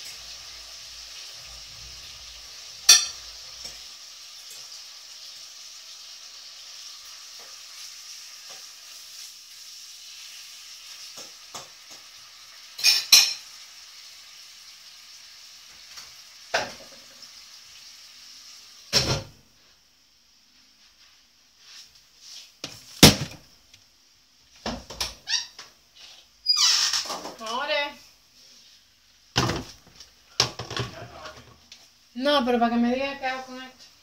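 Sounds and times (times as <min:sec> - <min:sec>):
food sizzling in a pan: 0:00.0 - 0:34.0
cookware clattering: 0:02.9 - 0:03.2, 0:12.8 - 0:13.5.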